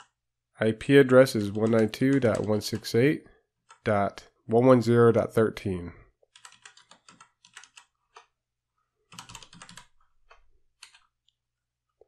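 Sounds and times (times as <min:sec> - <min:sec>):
typing on computer keyboard: 0:01.2 - 0:03.0, 0:06.3 - 0:08.3, 0:09.1 - 0:11.1.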